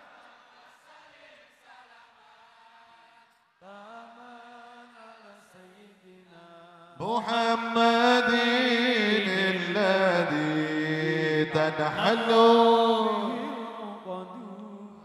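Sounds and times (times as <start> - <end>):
man singing unaccompanied: 5.5 - 15.0.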